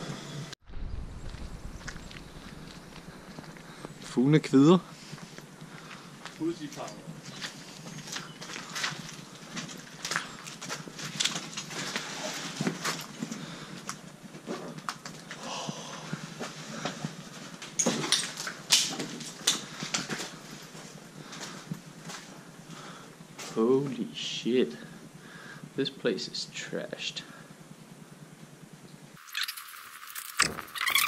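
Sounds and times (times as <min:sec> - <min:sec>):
footsteps crunching over rubble: 0:00.7 - 0:23.6
sharp cracks and clicks: 0:18.2 - 0:19.7.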